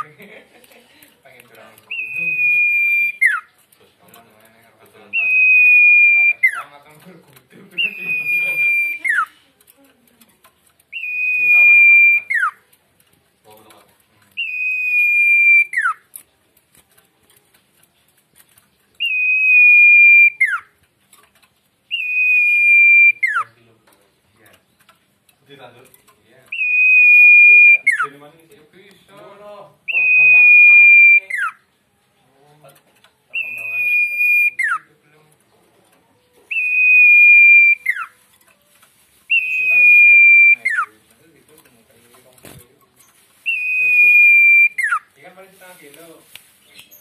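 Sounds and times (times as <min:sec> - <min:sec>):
songbird whistling: 0:01.9 - 0:03.5, 0:05.1 - 0:06.6, 0:07.8 - 0:09.3, 0:10.9 - 0:12.6, 0:14.4 - 0:16.0, 0:19.0 - 0:20.7, 0:21.9 - 0:23.6, 0:26.5 - 0:28.1, 0:29.9 - 0:31.6, 0:33.3 - 0:34.9, 0:36.5 - 0:38.2, 0:39.3 - 0:40.9, 0:43.4 - 0:45.1.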